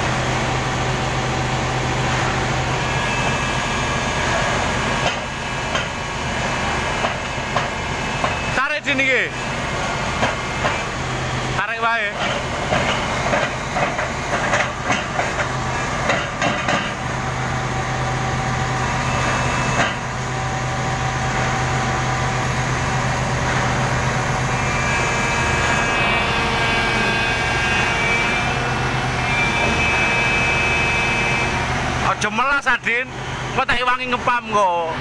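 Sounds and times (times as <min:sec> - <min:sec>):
diesel engine running under load: 0:00.0 - 0:35.0
thin high whine: 0:01.9 - 0:05.6.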